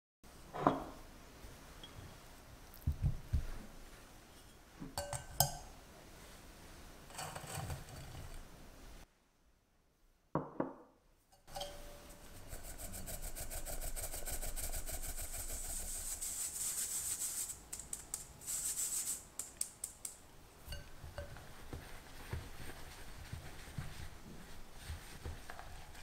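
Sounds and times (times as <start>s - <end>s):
sugar sifted through metal sieve: 7.1s - 8.4s, 11.5s - 19.5s.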